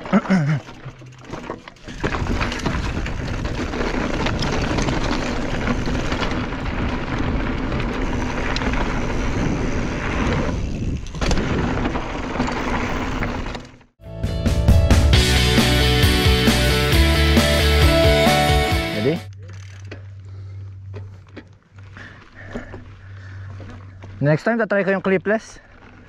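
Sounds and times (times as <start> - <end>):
tyres crunching over gravel: 0.0 - 13.6, 19.6 - 26.0
bike rattling and clicking: 0.0 - 14.0, 19.3 - 26.0
wind rumble on microphone: 1.9 - 12.1.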